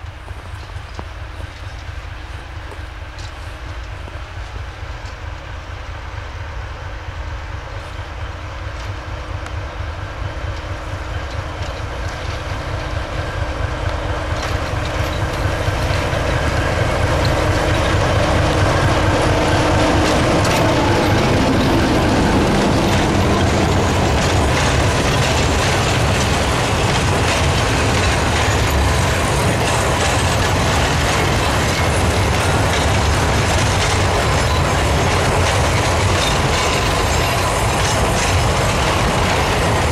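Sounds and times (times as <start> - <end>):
diesel locomotive engine running: 0.0 - 39.9
train wagons rumbling: 0.0 - 39.9
wheel clatter on track: 10.5 - 39.9.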